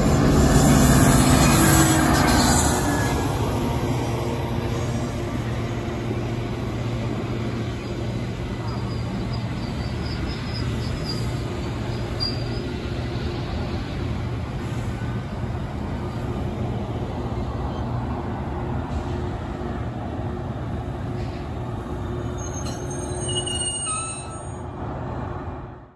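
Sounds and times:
high squeals: 22.3s - 24.7s.

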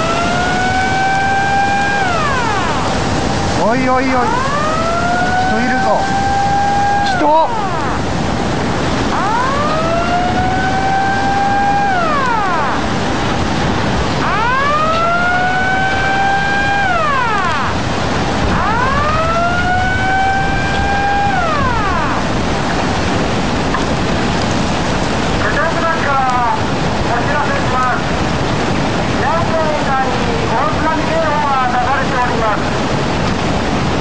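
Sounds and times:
warning siren wailing: 0.0s - 24.5s
floodwater rushing: 0.0s - 34.0s.

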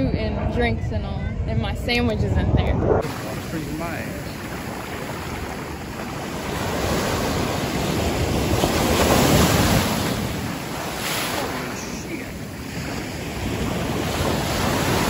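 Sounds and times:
ocean surf washing onto shore: 3.0s - 15.0s.

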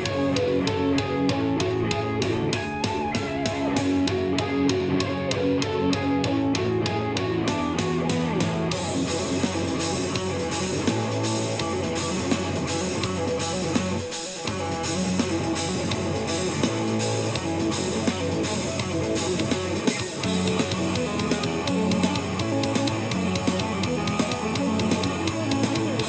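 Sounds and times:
sustained low bass notes: 0.0s - 19.5s
electric guitar lead notes: 0.0s - 26.0s.

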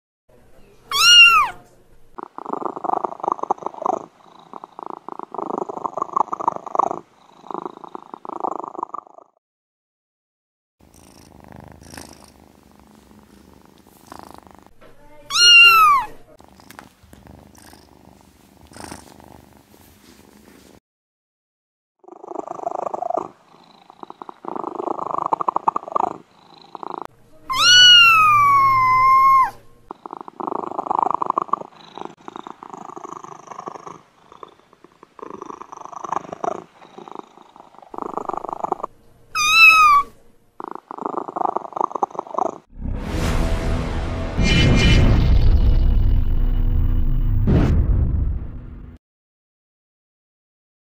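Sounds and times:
cat meowing: 0.9s - 1.6s, 15.2s - 16.3s, 27.5s - 29.6s, 39.4s - 40.2s
cat purring: 2.1s - 9.4s, 10.8s - 20.8s, 22.0s - 42.7s.

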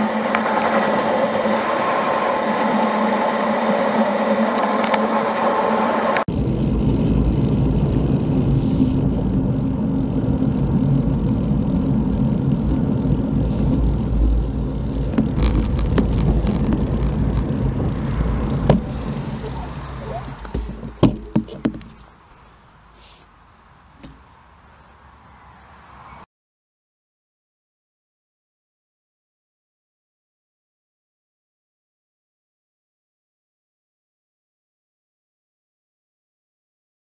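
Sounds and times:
wind rushing over microphone: 0.0s - 22.1s
bicycle tyre road noise: 0.0s - 26.3s.

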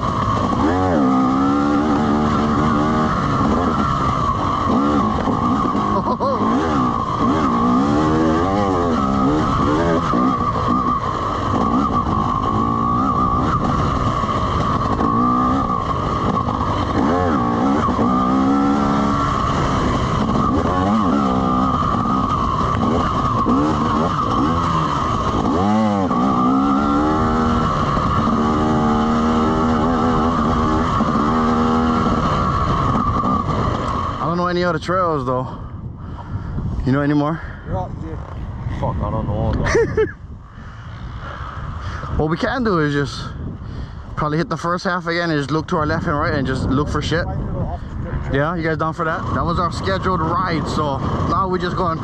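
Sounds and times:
dirt bike engine revving: 0.0s - 35.6s, 48.4s - 52.0s.

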